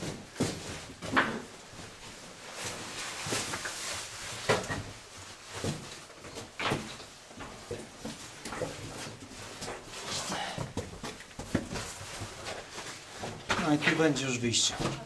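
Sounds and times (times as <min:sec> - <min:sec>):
clothing rustling: 0:00.0 - 0:15.0.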